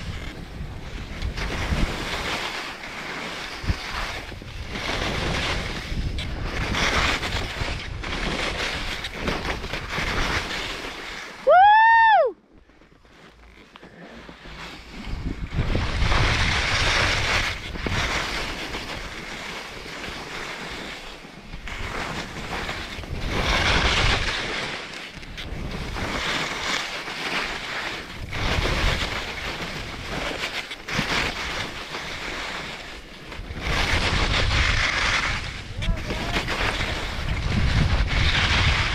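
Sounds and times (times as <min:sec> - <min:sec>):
skis scraping on snow: 0:00.0 - 0:38.9
wind buffeting microphone: 0:03.6 - 0:10.4, 0:15.0 - 0:19.2, 0:33.2 - 0:38.9.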